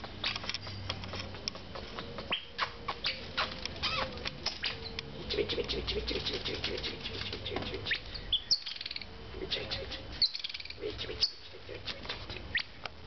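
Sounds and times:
sharp clicks and rustles: 0.0 - 9.1
high-pitched chirping calls: 0.0 - 12.8.

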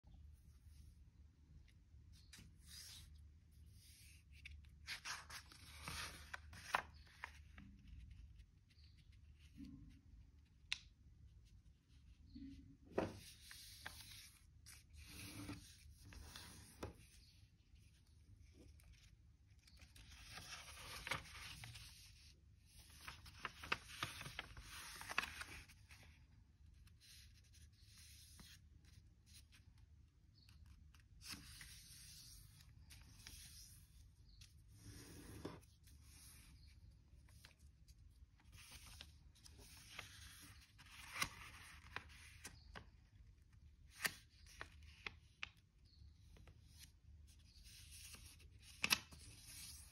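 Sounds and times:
paper crinkling and rustling: 4.2 - 8.6, 18.6 - 26.2, 37.3 - 43.0.

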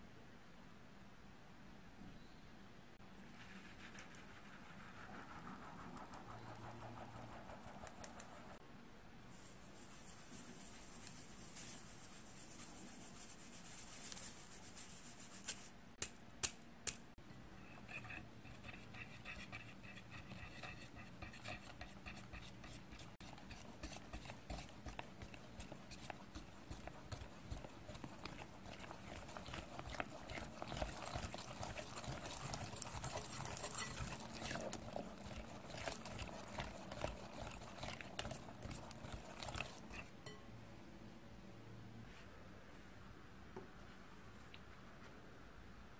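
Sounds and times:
flour rubbed through mesh sieve: 3.2 - 8.6, 9.2 - 15.9, 17.8 - 40.0
wire whisk scraping glass bowl: 17.6 - 40.4.

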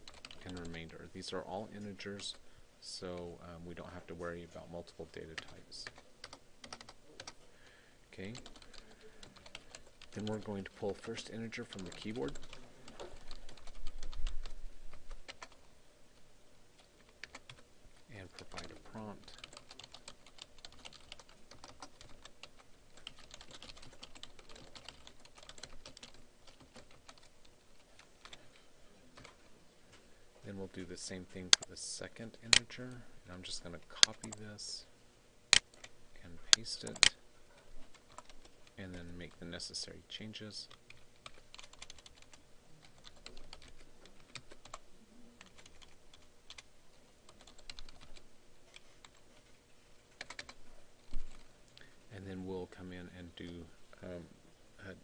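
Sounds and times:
computer keyboard typing: 0.0 - 0.9, 5.4 - 7.4, 8.3 - 14.6, 15.2 - 15.6, 17.0 - 17.6, 18.4 - 28.4, 36.5 - 37.2, 37.9 - 39.0, 40.7 - 44.8, 45.4 - 46.6, 47.3 - 49.2, 50.2 - 51.4.

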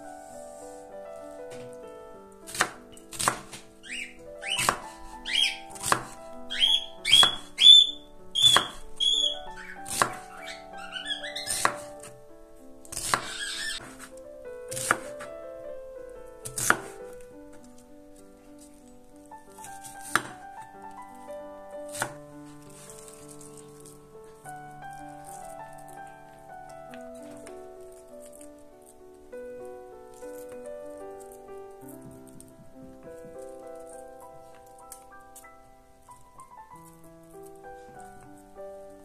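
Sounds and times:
knife slicing onion on board: 2.5 - 3.6, 4.5 - 4.9, 5.8 - 6.2, 8.4 - 8.8, 9.9 - 10.2, 11.5 - 11.9, 12.9 - 14.0, 14.7 - 15.2, 16.5 - 17.0, 19.8 - 20.3.

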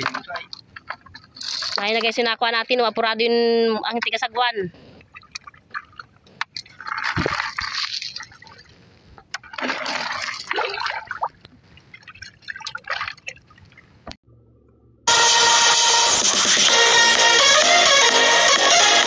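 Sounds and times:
shellfish rattling and sloshing: 0.0 - 2.2, 5.0 - 14.0.

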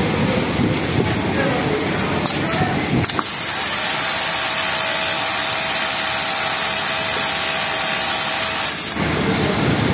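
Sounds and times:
sewing machine whirring: 3.2 - 9.1.

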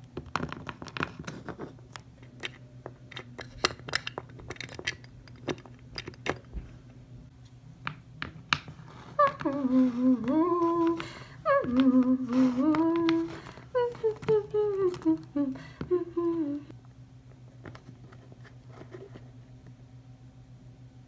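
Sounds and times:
low steady hum: 0.0 - 21.0
woman humming a tune: 9.1 - 16.8.

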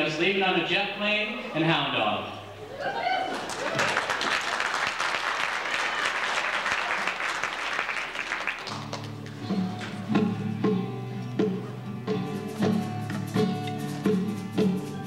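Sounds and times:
audience applauding: 3.3 - 9.4
band playing strummed chords: 8.6 - 15.0.

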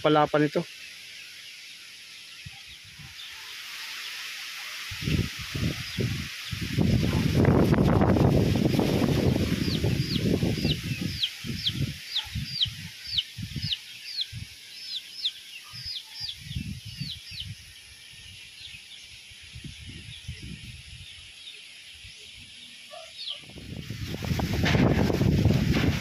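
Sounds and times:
bird chirping: 0.0 - 4.3, 5.0 - 7.5, 8.8 - 24.5
strong wind buffeting microphone: 4.9 - 14.6, 15.7 - 17.8, 19.4 - 21.2, 23.4 - 26.0.

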